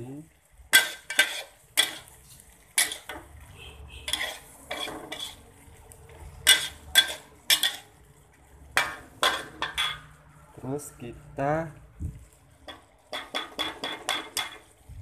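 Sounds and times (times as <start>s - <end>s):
metal utensil scraping a pan: 0.7s - 10.3s, 12.5s - 14.9s.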